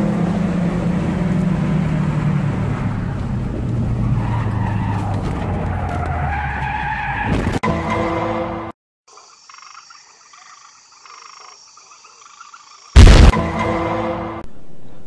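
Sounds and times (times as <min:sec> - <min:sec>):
car engine running hard: 0:00.0 - 0:06.0
tyres squealing: 0:03.8 - 0:07.4.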